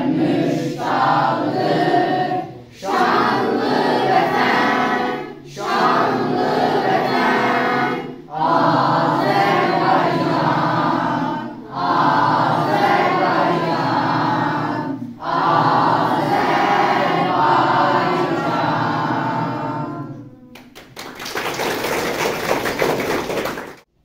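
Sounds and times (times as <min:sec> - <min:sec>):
children's choir singing: 0:00.0 - 0:21.0
people clapping: 0:20.5 - 0:23.9.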